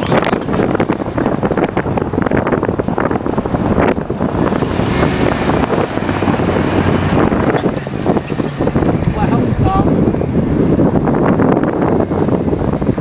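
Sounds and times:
pickup truck engine running: 0.0s - 13.0s
wind buffeting microphone: 0.0s - 13.0s.

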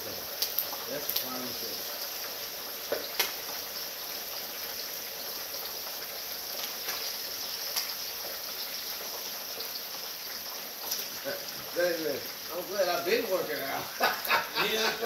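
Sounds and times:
turkey sizzling in hot oil: 0.0s - 15.0s
sharp oil pops: 2.9s - 3.4s.

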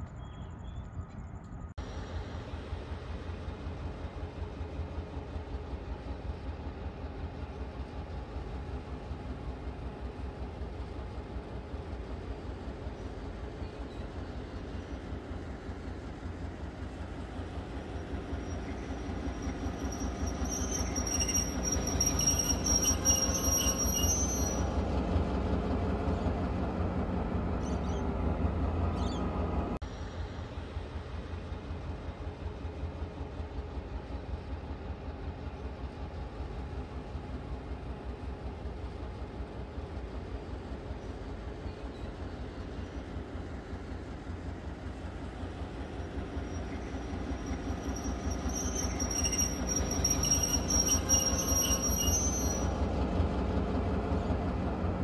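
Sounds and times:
diesel locomotive engine: 0.0s - 55.0s
high metallic wheel squeal: 18.0s - 25.2s, 46.1s - 53.1s.

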